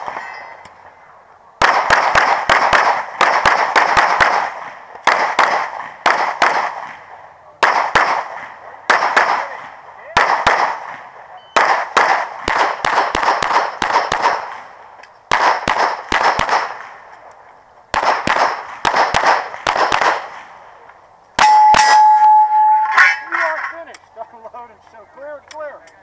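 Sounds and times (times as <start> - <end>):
rapid pistol shots: 1.6 - 7.0, 7.6 - 11.0, 11.6 - 14.7, 15.3 - 17.0, 17.9 - 20.5
loud steady ringing tone: 21.4 - 23.4.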